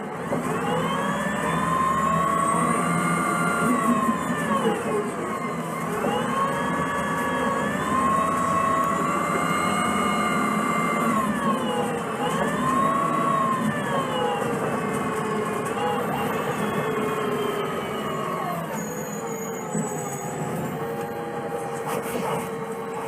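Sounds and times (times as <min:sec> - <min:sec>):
bus drivetrain whine: 0:00.0 - 0:23.0
bus engine rumble: 0:00.0 - 0:23.0.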